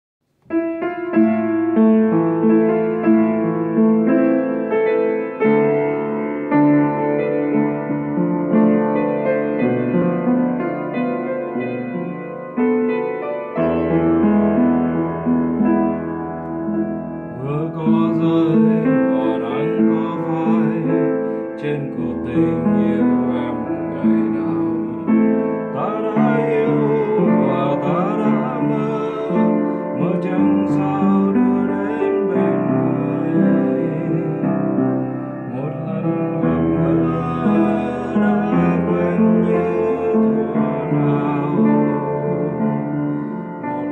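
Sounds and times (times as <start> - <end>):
solo piano playing: 0.2 - 43.9
man singing: 17.3 - 43.9.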